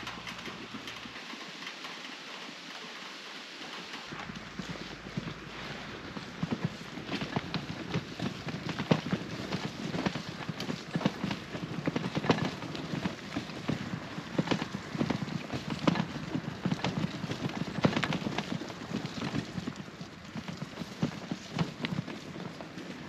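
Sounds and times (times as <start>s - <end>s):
bicycle knocks and rattles: 0.0s - 1.9s, 6.4s - 19.7s
bicycle rolling over wet gravel: 0.0s - 23.0s.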